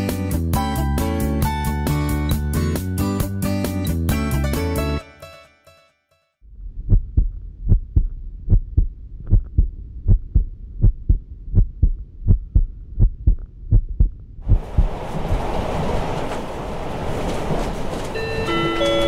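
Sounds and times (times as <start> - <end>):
dull train rumble: 6.8 - 19.0
train wheels clattering over rails: 14.6 - 19.0.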